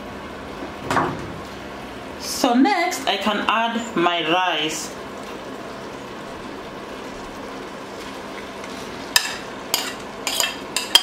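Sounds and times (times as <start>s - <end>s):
sauce sizzling in a pot: 2.4s - 11.0s
spoon clinking against pot: 9.1s - 11.0s.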